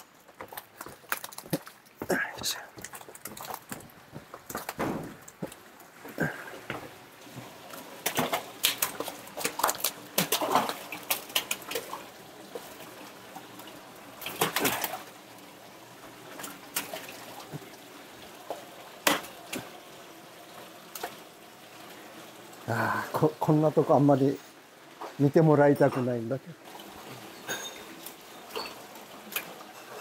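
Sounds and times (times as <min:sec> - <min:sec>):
fish splashing and thrashing: 0:00.0 - 0:15.3, 0:16.2 - 0:17.7
water splashing: 0:00.0 - 0:22.1.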